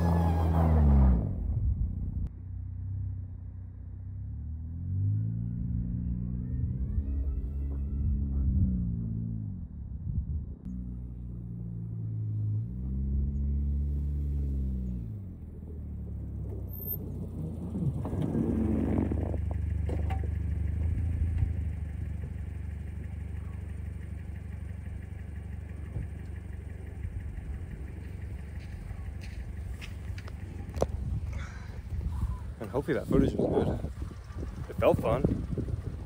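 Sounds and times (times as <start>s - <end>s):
wheels spinning in snow: 0.0s - 1.0s, 5.9s - 9.1s, 13.4s - 36.0s
car engine revving: 0.0s - 3.4s, 4.0s - 10.0s, 10.6s - 36.0s.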